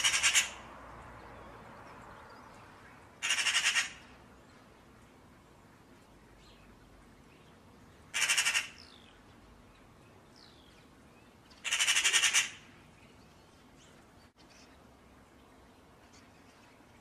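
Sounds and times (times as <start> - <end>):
magpie rattling chatter: 0.0 - 0.6, 3.2 - 4.0, 8.2 - 8.8, 11.6 - 12.6
small birds chirping: 6.0 - 17.0.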